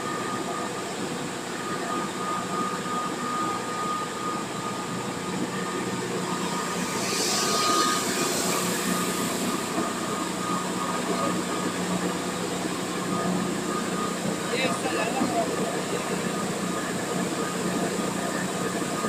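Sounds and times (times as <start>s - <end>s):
high whine: 0.0s - 19.0s
mill machinery droning: 0.0s - 19.0s
rush of hiss: 6.8s - 9.6s.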